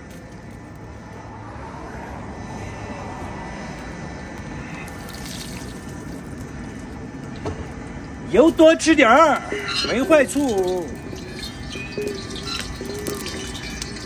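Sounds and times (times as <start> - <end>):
steady rushing noise: 0.0 - 14.0
oil pouring into wok: 4.9 - 6.4.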